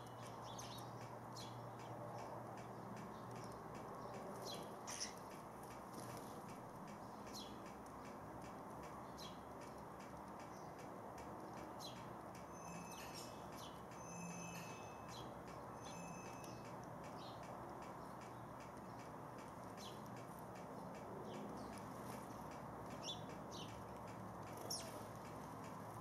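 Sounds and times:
sparrows chirping: 0.0s - 26.0s
thin whistled bird notes: 11.8s - 17.4s.

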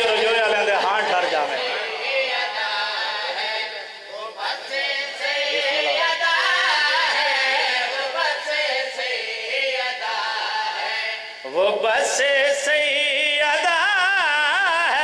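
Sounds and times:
man singing into a microphone: 11.4s - 15.0s.

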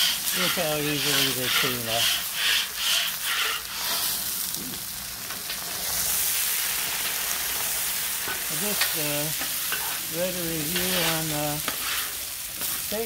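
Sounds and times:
scrub brush scrubbing griddle: 0.0s - 4.2s
water sizzling on hot steel: 0.0s - 13.0s.

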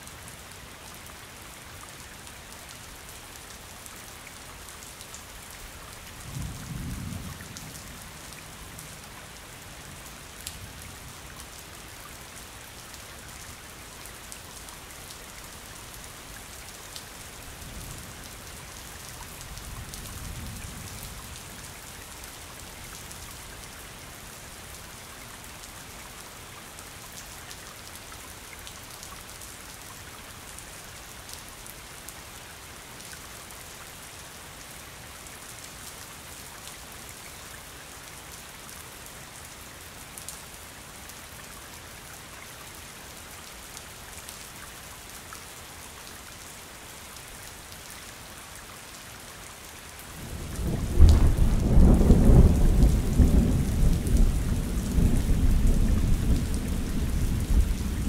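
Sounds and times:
steady rain falling: 0.0s - 58.0s
low rumble of thunder: 6.2s - 8.9s, 50.2s - 58.0s.

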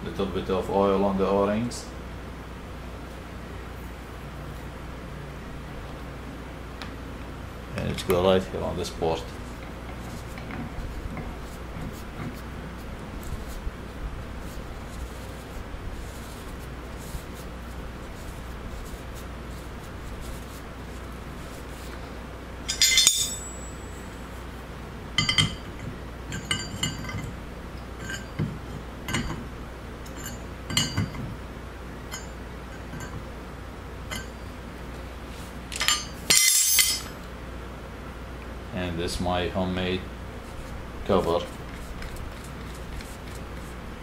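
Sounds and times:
metallic clatter: 22.6s - 24.2s, 25.2s - 27.4s, 30.0s - 31.4s, 35.7s - 37.2s
metal wrench clinks and clicks: 22.7s - 23.9s, 35.7s - 37.1s.

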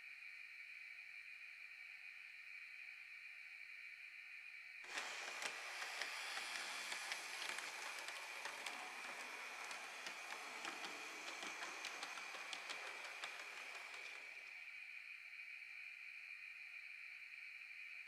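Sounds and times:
model train rolling on track: 4.8s - 14.7s
wheels clicking on rails: 4.9s - 14.6s.

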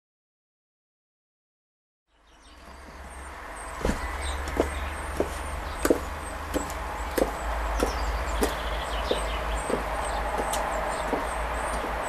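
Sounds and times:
high heels clicking on paving stones: 3.8s - 12.0s.

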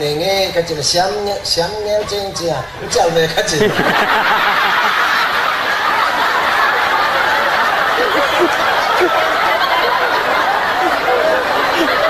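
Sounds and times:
crowd chatter: 0.0s - 12.0s
audience laughing: 3.4s - 12.0s.

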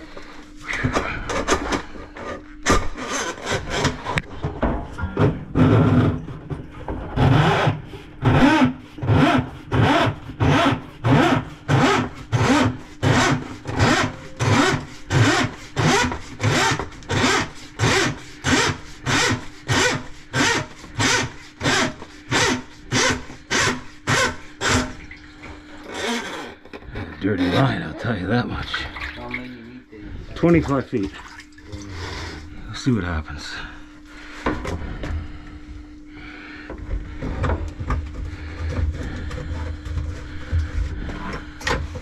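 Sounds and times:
steady motor hum: 0.0s - 42.0s.

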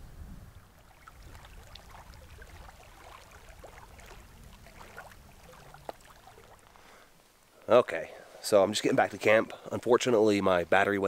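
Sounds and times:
small waves lapping on rocks: 0.7s - 7.5s
water plinks: 0.7s - 7.5s.

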